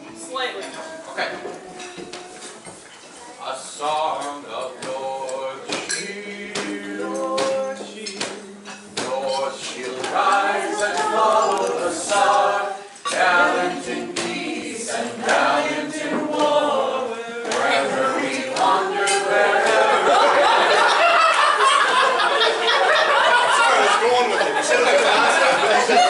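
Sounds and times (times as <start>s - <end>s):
group singing along: 0.0s - 2.8s, 3.4s - 26.0s
woman singing unaccompanied: 0.0s - 3.4s, 5.0s - 20.0s.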